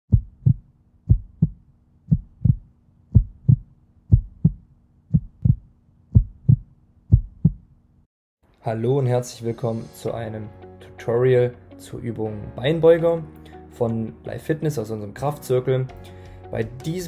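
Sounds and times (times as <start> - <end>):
heartbeat thumps: 0.1 - 7.7.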